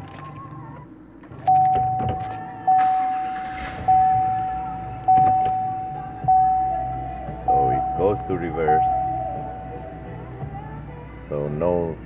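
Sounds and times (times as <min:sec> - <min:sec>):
dashboard warning chime dinging: 0:01.5 - 0:10.0.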